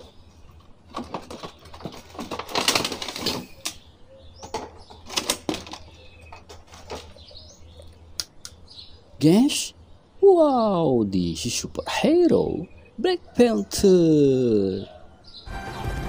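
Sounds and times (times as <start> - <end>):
faint bird chirps: 3.2 - 15.5.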